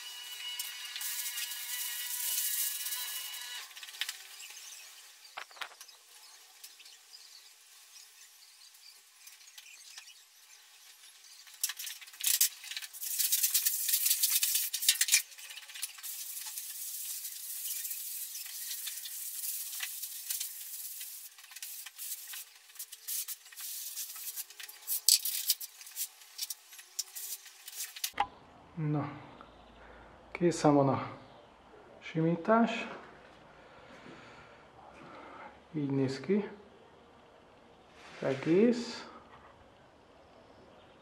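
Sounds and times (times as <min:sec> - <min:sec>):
float scraping plastered wall: 0:01.0 - 0:28.2.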